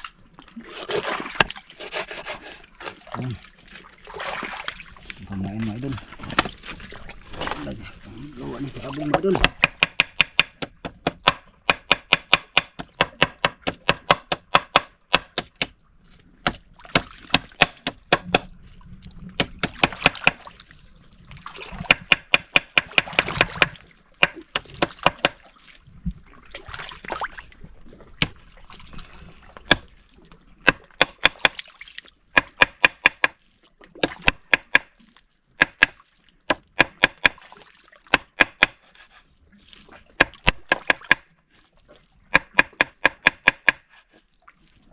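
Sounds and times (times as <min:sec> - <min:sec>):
rapid chopping strikes: 0:09.4 - 0:15.7, 0:36.5 - 0:37.4.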